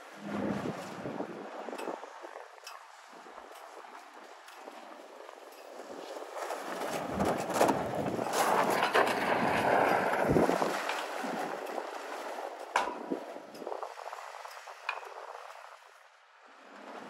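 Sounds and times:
tires spinning on snow: 0:05.9 - 0:12.6.

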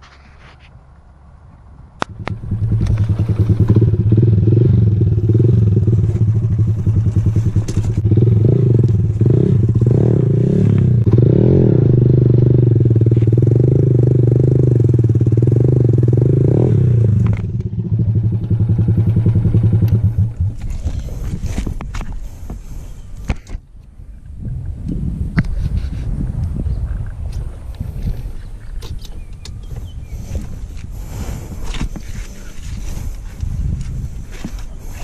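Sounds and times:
motorcycle engine revving: 0:02.0 - 0:22.0.

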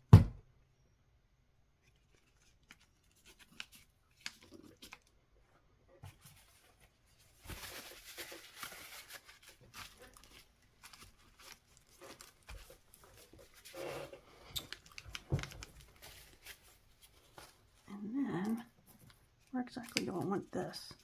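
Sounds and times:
paper and fabric rustling: 0:06.0 - 0:21.0.

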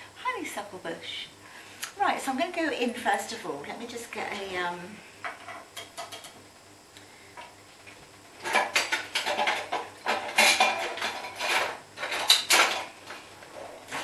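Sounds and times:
metal utensils clattering: 0:08.4 - 0:12.9.

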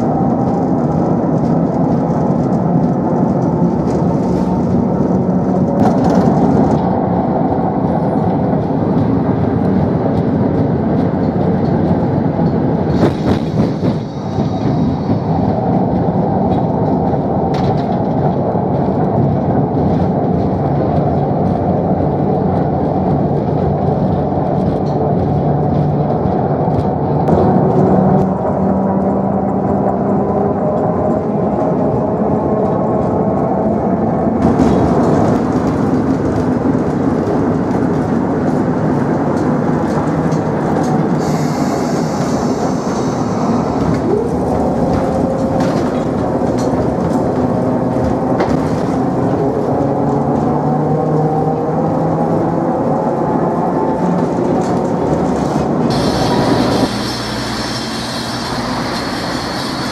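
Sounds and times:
street sounds: 0:00.0 - 0:59.9
tram wheels rumbling over rails: 0:00.0 - 0:59.9
high hiss or squeal: 0:41.2 - 0:43.8, 0:55.9 - 0:59.9.

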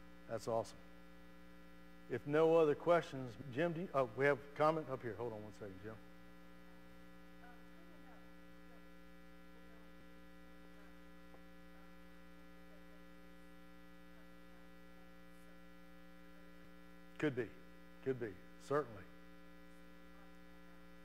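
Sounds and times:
electrical mains hum: 0:00.0 - 0:21.0
man speaking into microphone: 0:02.1 - 0:06.0, 0:17.2 - 0:19.1.

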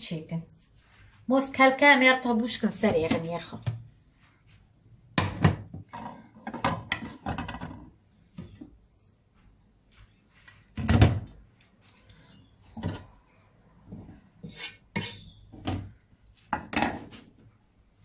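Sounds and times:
wooden spatula scraping pan: 0:05.8 - 0:07.7, 0:12.4 - 0:17.2.

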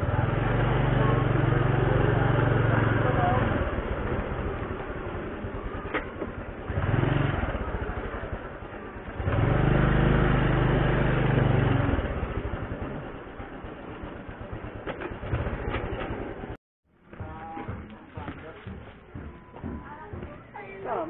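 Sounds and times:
scooter engine running: 0:00.0 - 0:16.6.

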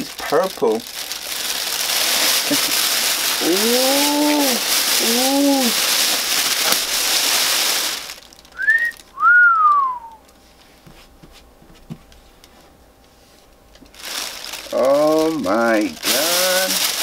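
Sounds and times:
plastic bag crinkling: 0:00.0 - 0:10.4, 0:13.7 - 0:17.0
two-note wolf whistle: 0:08.6 - 0:10.2.

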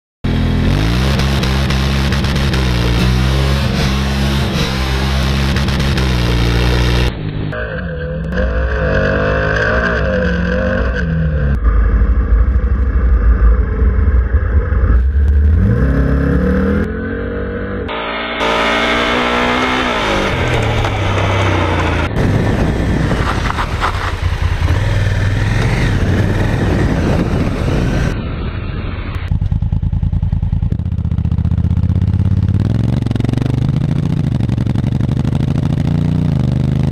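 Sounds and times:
motorcycle engine revving: 0:00.2 - 0:36.9
gravel noise: 0:18.4 - 0:32.2
wind noise: 0:20.0 - 0:29.8.

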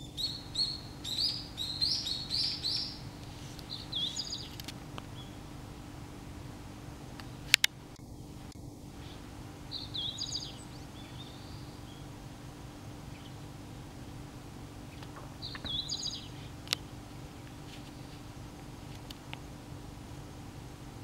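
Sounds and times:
bird singing high phrases: 0:00.0 - 0:05.4, 0:09.0 - 0:12.4, 0:13.0 - 0:13.5, 0:14.9 - 0:16.9
steady low hum: 0:00.0 - 0:21.0
sharp click: 0:07.5 - 0:07.8.

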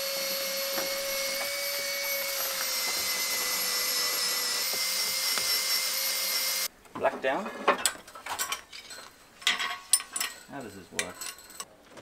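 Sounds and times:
angle grinder whining: 0:00.0 - 0:06.7.

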